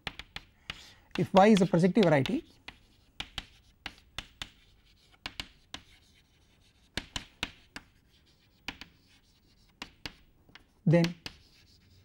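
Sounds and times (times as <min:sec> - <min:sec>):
chalk tapping and scratching on blackboard: 0:00.0 - 0:12.0.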